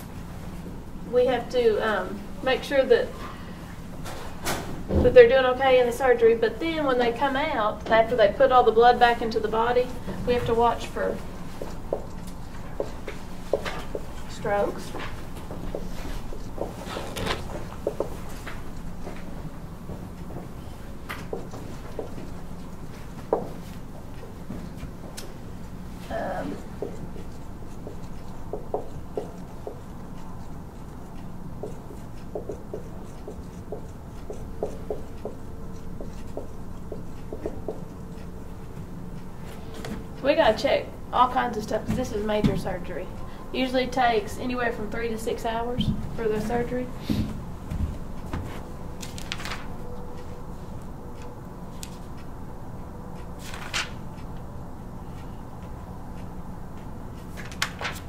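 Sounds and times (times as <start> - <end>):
low room hum: 0.0 - 58.0
marker squeaking on a whiteboard: 26.1 - 38.3
papers rustling on a table: 48.3 - 49.8, 53.4 - 54.0, 57.2 - 58.0.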